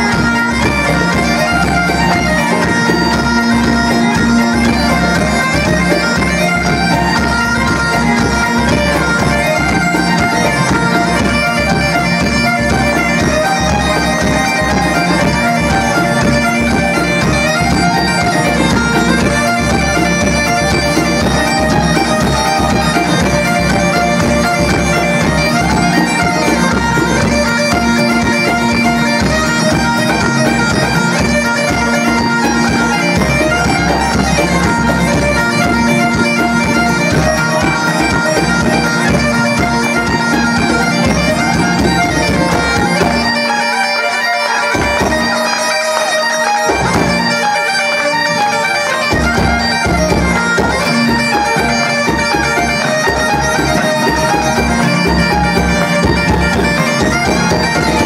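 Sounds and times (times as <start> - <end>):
bodhran frame drum: 0.0 - 43.4, 49.1 - 58.0
button accordions: 0.0 - 58.0
fiddles: 0.0 - 58.0.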